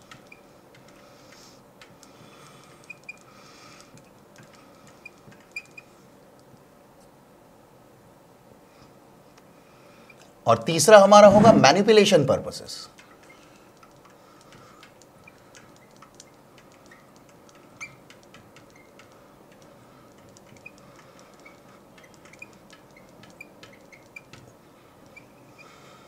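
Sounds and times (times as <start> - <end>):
marker squeaking on glass: 2.8 - 3.3, 5.0 - 5.9, 15.2 - 19.2, 20.4 - 25.8.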